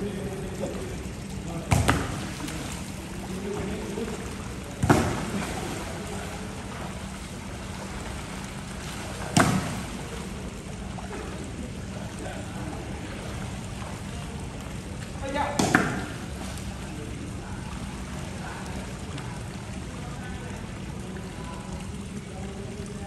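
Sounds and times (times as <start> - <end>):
pool water splashing and lapping: 0.0 - 23.0
sharp slaps on water: 1.6 - 3.7, 4.7 - 6.4, 7.2 - 10.4, 15.5 - 16.8.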